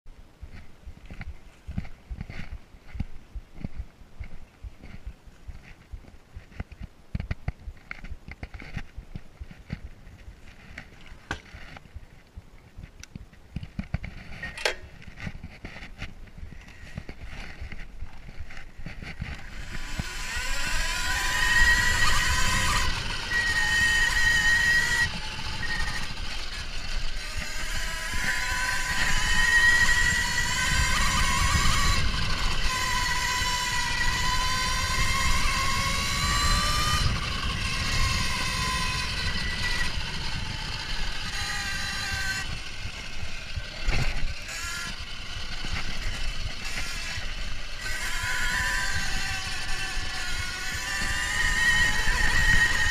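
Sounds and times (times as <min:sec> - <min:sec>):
low rumble of tyres and wind: 0:00.1 - 0:52.9
electric motorcycle motor whining: 0:16.5 - 0:52.9.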